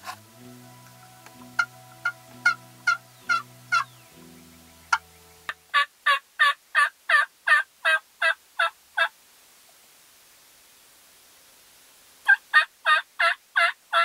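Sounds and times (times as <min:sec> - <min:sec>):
low background music: 0:00.0 - 0:05.8
turkey yelps on box call: 0:01.6 - 0:03.9, 0:12.3 - 0:14.0.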